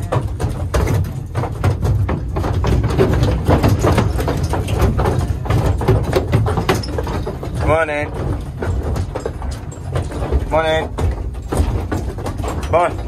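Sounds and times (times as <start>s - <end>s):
hooves clattering on trailer floor: 0.0s - 13.0s.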